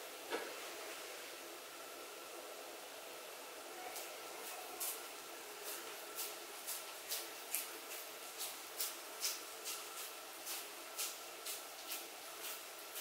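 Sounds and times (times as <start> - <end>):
faint steady hum: 0.0 - 13.0
hands squishing minced meat: 5.6 - 13.0.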